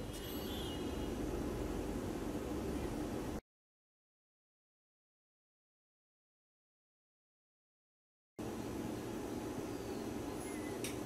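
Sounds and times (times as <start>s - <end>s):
room hum: 0.0s - 3.4s, 8.4s - 11.0s.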